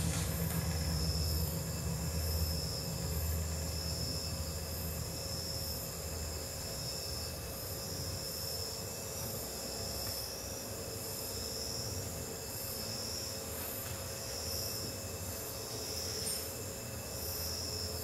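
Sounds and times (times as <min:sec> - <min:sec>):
low hum: 0:00.0 - 0:07.6
cricket-like chirping: 0:00.0 - 0:18.0.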